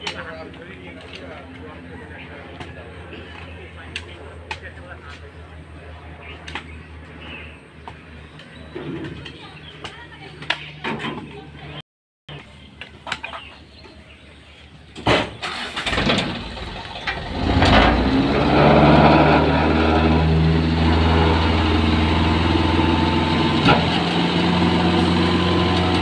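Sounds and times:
diesel truck engine starting: 0:15.1 - 0:26.0.

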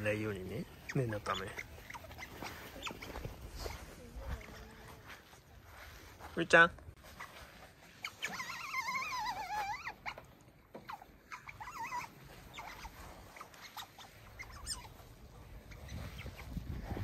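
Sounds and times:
otter warbling squeaks: 0:00.0 - 0:03.5, 0:07.9 - 0:10.2, 0:10.8 - 0:17.0
otter chirps and clicks: 0:00.5 - 0:03.4, 0:08.0 - 0:17.0.

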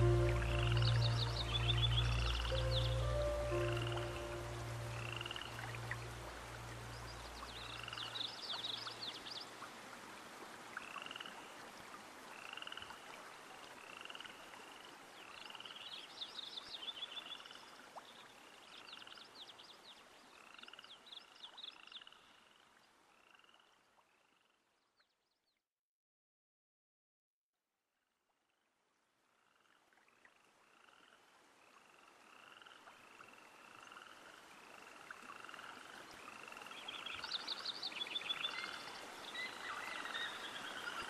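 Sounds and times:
frogs rattling calls: 0:00.0 - 0:06.2
soft music tone: 0:00.0 - 0:08.2
frogs chirping: 0:00.0 - 0:09.0, 0:12.4 - 0:13.0, 0:13.8 - 0:14.7, 0:29.4 - 0:41.0.

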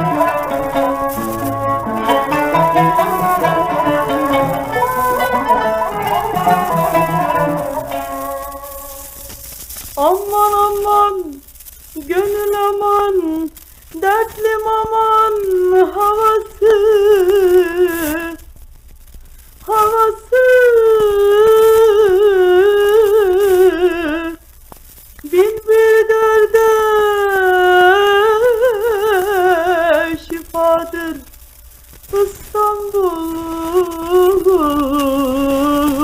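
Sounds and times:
woman singing solo: 0:00.0 - 0:09.4, 0:32.2 - 0:36.0
record hiss: 0:00.0 - 0:36.0.

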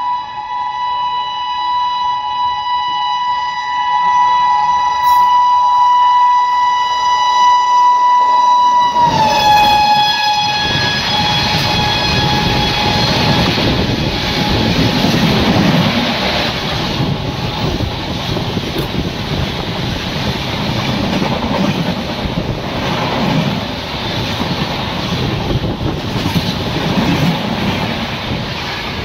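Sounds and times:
train horn: 0:00.0 - 0:15.4
train coaches rumbling past: 0:03.6 - 0:29.0.

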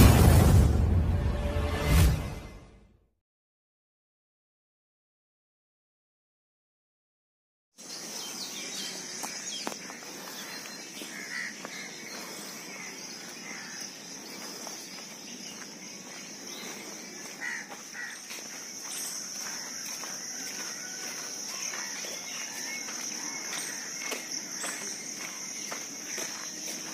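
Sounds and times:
bird calls: 0:07.8 - 0:26.9
footsteps on dirt path: 0:07.8 - 0:26.9
crow cawing: 0:09.9 - 0:13.9, 0:17.2 - 0:18.5, 0:19.4 - 0:24.8.

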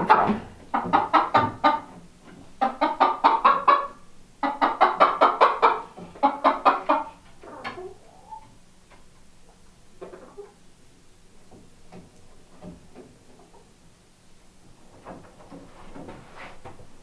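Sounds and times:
chicken clucking: 0:00.0 - 0:10.7.

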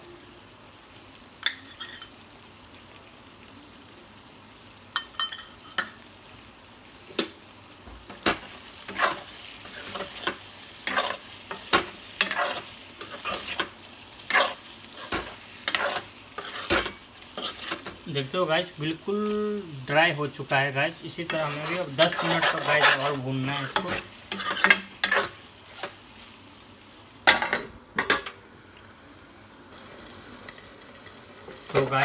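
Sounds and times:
meat sizzling in a pan: 0:00.0 - 0:32.0
spatula scraping the pan: 0:08.1 - 0:18.0, 0:21.0 - 0:26.3.

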